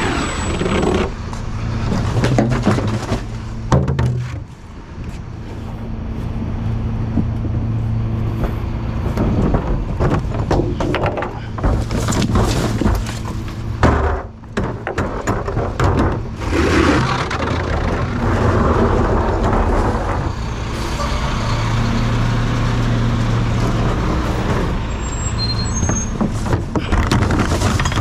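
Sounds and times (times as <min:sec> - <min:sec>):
garbage truck running: 0:00.0 - 0:28.0
clanks and knocks: 0:00.6 - 0:04.5, 0:08.3 - 0:20.5, 0:25.8 - 0:28.0.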